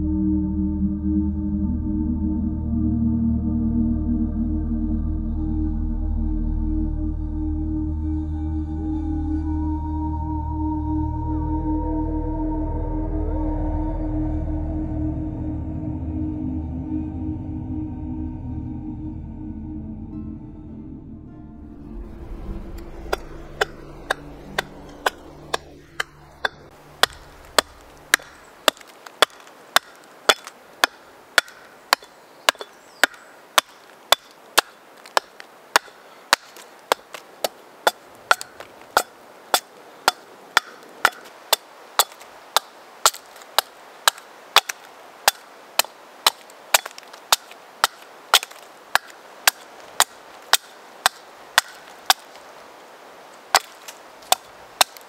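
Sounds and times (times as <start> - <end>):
axe chopping log: 23.0 - 52.4, 53.5 - 55.0.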